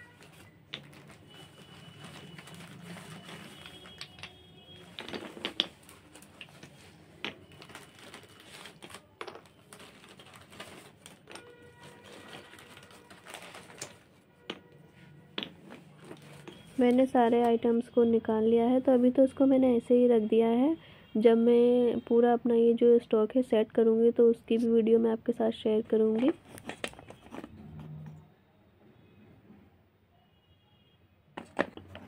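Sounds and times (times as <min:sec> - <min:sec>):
plastic bag crinkling: 0:00.0 - 0:14.1
clay pieces clacking together: 0:03.4 - 0:07.4, 0:26.2 - 0:27.5.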